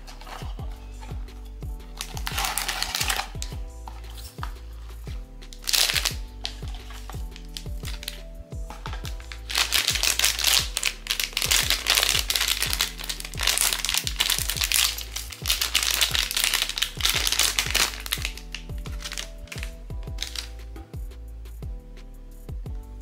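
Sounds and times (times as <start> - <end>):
background music with steady beat: 0.0 - 23.0
packaging crinkling and rustling: 2.0 - 4.4, 5.5 - 8.2, 8.8 - 20.5.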